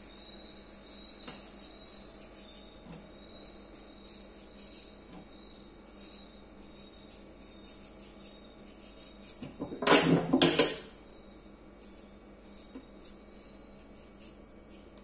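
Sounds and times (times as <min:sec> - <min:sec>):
knife scraping cucumber skin: 0:00.7 - 0:05.0, 0:05.8 - 0:09.5, 0:11.8 - 0:15.0.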